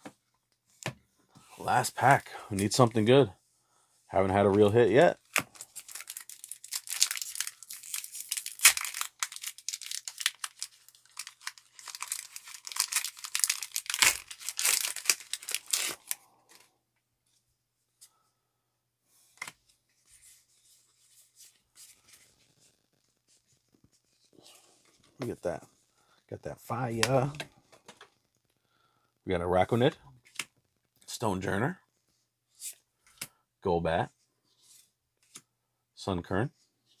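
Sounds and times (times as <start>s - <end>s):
foil wrapper tearing and crinkling: 5.4s - 16.2s.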